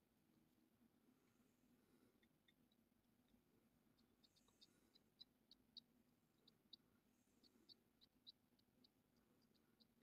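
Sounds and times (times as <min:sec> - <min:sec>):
faint high-pitched ticks: 0:02.1 - 0:10.0.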